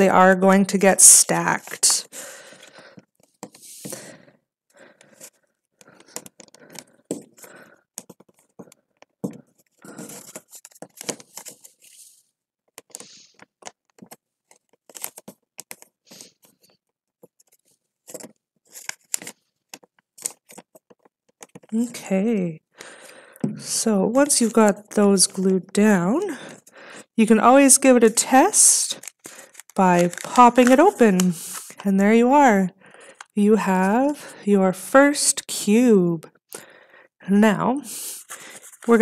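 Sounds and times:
glue stick scraping paper: 17.3 - 21.7, 28.2 - 32.6.

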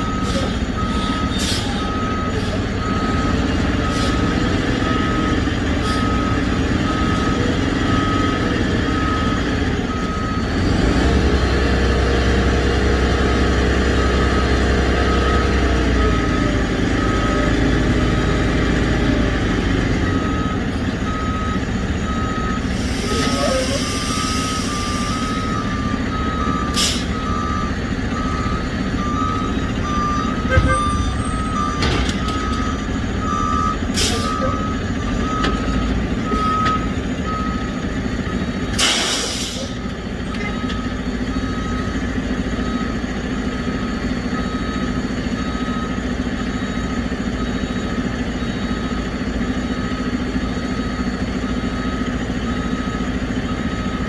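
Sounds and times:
backup alarm beeping: 0.0 - 11.2, 20.0 - 38.7
diesel truck engine: 0.0 - 54.0.

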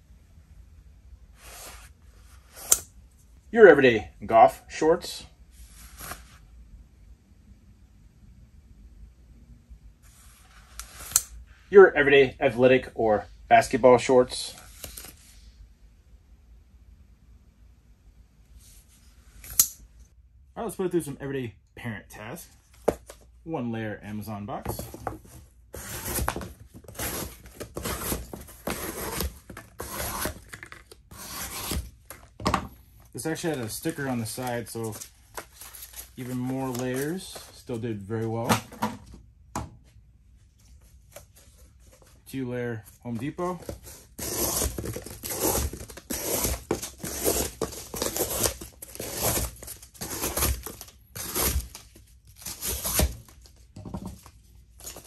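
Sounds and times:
knife scraping through cardboard: 24.7 - 31.9, 43.6 - 51.8, 52.4 - 53.2.

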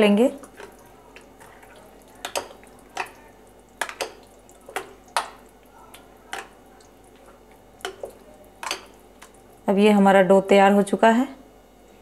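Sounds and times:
spoon scraping batter: 0.4 - 9.5.

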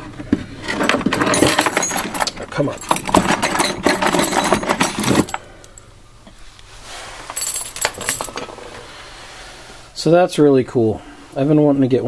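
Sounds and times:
metal tools and chain rattling: 0.6 - 5.8, 7.3 - 8.8.

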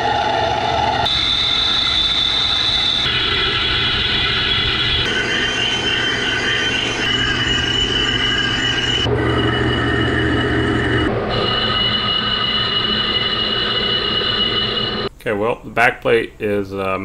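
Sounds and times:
metal lathe cutting whine: 0.0 - 15.1
low machine hum: 0.0 - 15.2.

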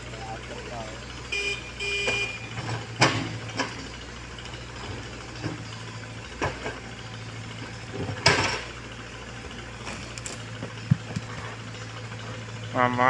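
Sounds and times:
excavator diesel engine running: 0.0 - 13.0
bucket knocking ground: 10.6 - 11.5.

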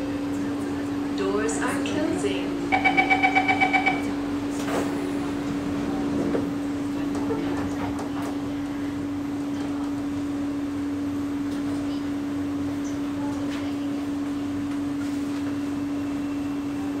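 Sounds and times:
constant hum: 0.0 - 15.6
train carriage running noise: 0.0 - 17.0.

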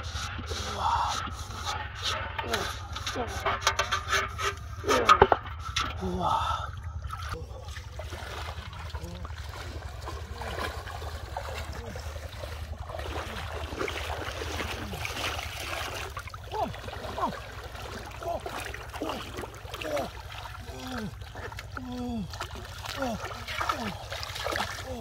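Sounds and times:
water sloshing around legs: 0.0 - 3.6, 4.3 - 25.0
low steady hum: 0.0 - 25.0
loud water splashes: 7.0 - 25.0.

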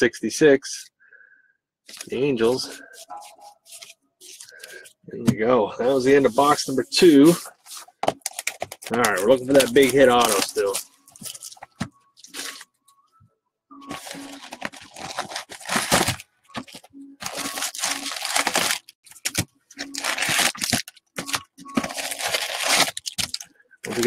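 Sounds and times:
foil wrappers torn and crinkled: 8.2 - 11.6, 14.0 - 24.0.

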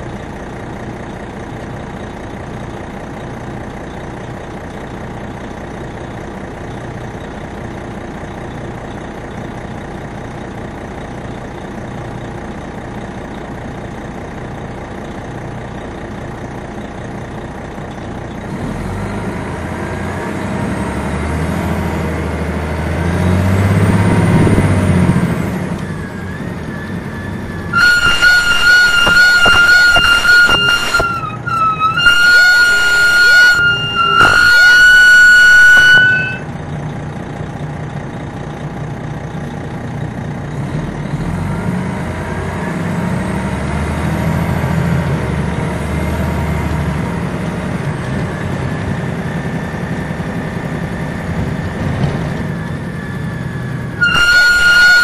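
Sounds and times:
bus engine droning: 0.0 - 55.0
high-pitched horn blasts: 27.7 - 36.5, 54.0 - 55.0.

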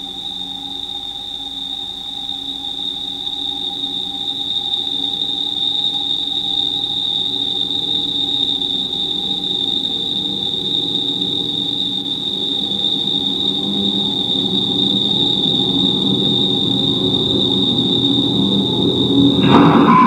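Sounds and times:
high whistling tone: 0.0 - 20.0.

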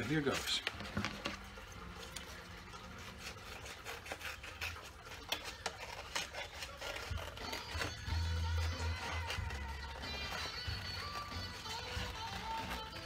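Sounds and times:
scissors snipping paper plate: 2.9 - 13.0.

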